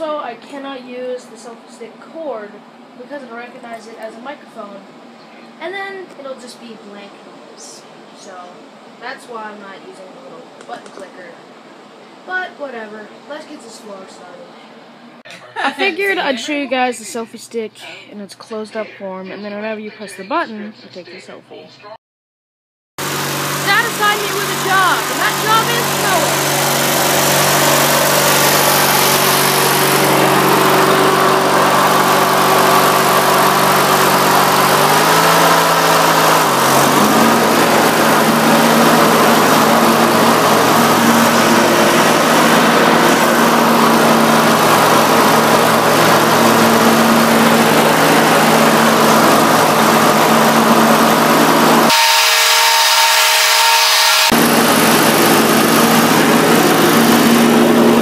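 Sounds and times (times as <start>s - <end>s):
riding lawn mower engine: 23.0s - 58.0s.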